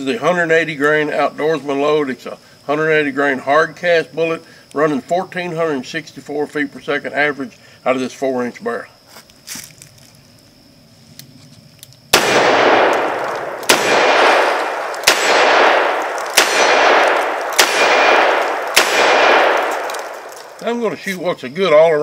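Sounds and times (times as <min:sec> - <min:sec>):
revolver shots echoing: 0:12.2 - 0:20.6.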